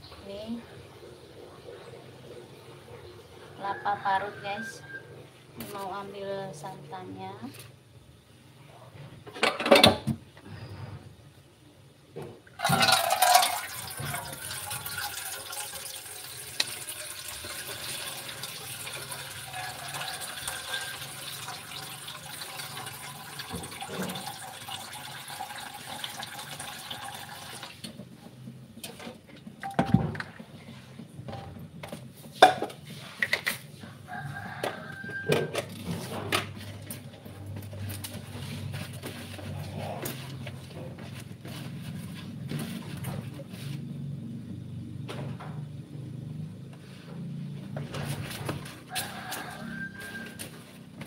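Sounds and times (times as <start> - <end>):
bowls clattering: 12.6 - 15.6, 29.6 - 30.6
water running into plastic basin: 12.6 - 29.0.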